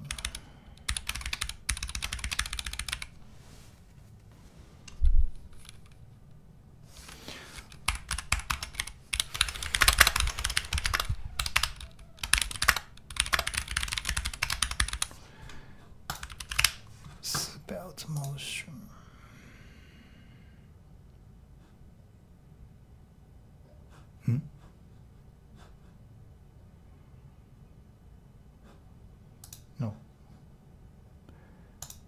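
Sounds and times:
rapid keyboard typing: 0.0s - 3.2s, 5.4s - 6.0s, 7.5s - 15.2s, 16.0s - 16.8s.

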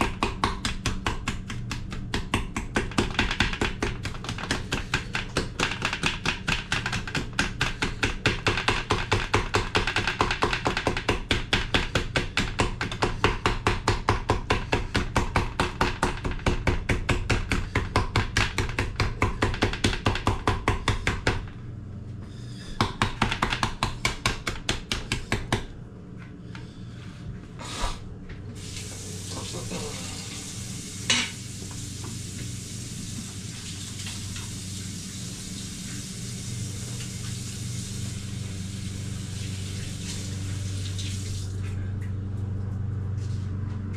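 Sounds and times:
knife chopping on cutting board: 0.0s - 21.4s, 22.7s - 25.7s.

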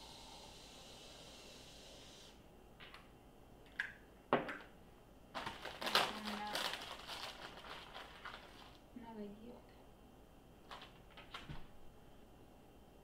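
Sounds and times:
cookies crumbled by hand: 5.3s - 8.9s, 10.6s - 11.5s.

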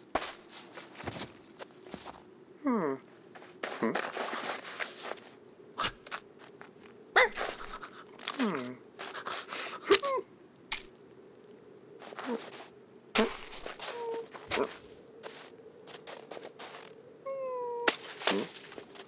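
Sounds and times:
footsteps crunching in snow: 0.0s - 2.3s, 3.2s - 9.9s, 12.0s - 17.0s, 17.9s - 19.0s.

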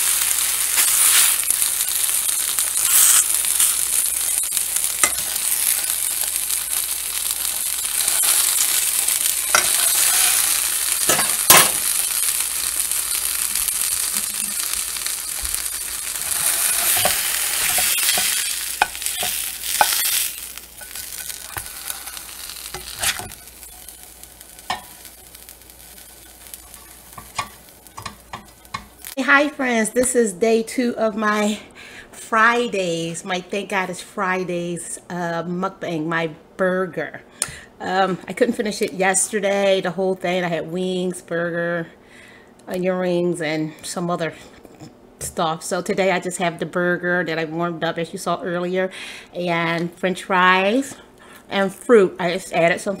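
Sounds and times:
burger sizzling in a frying pan: 0.0s - 29.6s
utensil scraping a pan: 9.4s - 11.8s, 15.6s - 23.9s.

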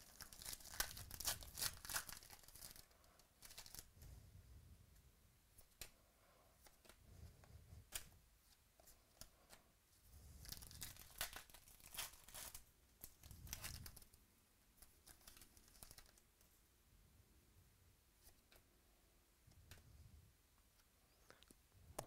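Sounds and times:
cards clicking and rubbing: 0.0s - 3.9s, 7.8s - 9.6s, 10.4s - 14.2s, 14.8s - 16.3s
foil wrapper tearing and crinkling: 0.0s - 3.9s, 10.4s - 14.1s, 14.8s - 16.2s.

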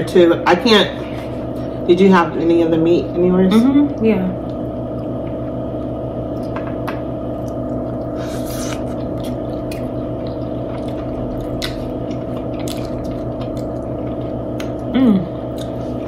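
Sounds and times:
steady hum: 0.0s - 16.0s
wet squishy chewing: 6.3s - 16.0s.

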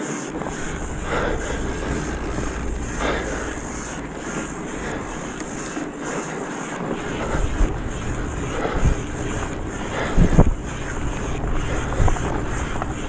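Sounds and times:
vehicle running on muddy trail: 0.0s - 13.0s
wind buffeting microphone: 0.3s - 6.2s, 6.9s - 13.0s.

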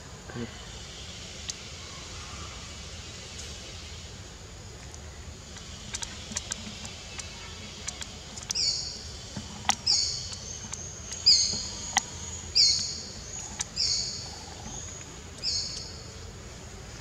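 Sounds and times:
bird calling high-pitched: 9.8s - 16.0s.

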